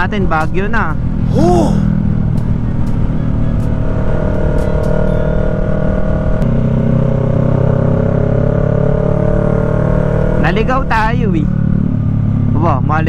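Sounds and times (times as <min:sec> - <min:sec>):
motorcycle engine cruising: 0:00.0 - 0:13.0
wind and road noise: 0:00.0 - 0:13.0.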